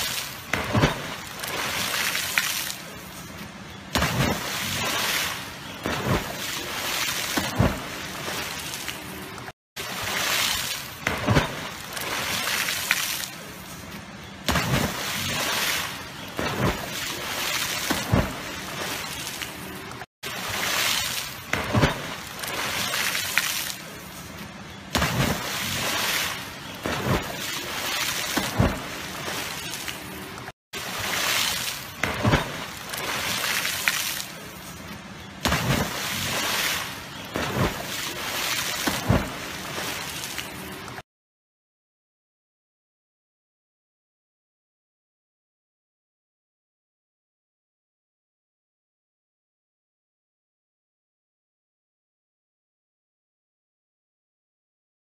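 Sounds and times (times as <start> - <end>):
water sloshing from swimming: 0.0 - 13.2, 24.1 - 34.0, 34.6 - 41.0.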